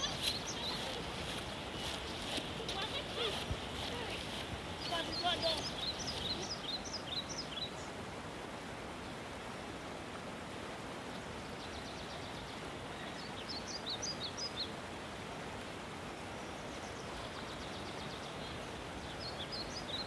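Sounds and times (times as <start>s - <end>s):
birds chirping: 0.0s - 7.9s, 16.4s - 20.0s
steady background hiss: 0.0s - 20.0s.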